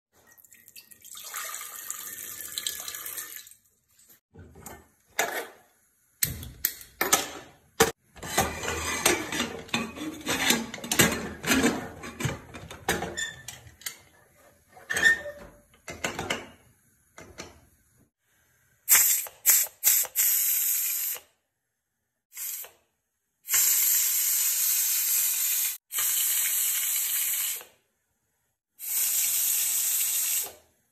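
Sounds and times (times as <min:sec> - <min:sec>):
pressure cooker whistle hissing: 0:23.5 - 0:27.7, 0:28.8 - 0:30.6.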